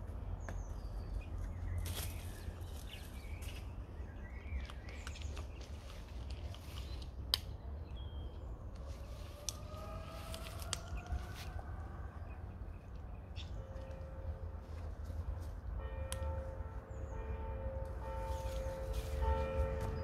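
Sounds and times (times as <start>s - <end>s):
steady low rumble: 0.0s - 20.0s
small birds chirping: 0.3s - 11.3s.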